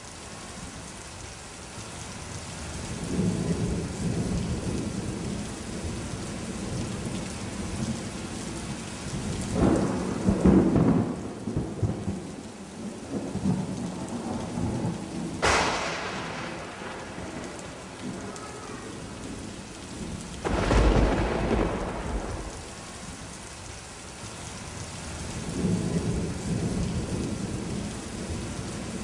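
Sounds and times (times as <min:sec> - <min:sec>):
rain hiss: 0:00.0 - 0:29.0
rolling thunder: 0:09.5 - 0:22.8.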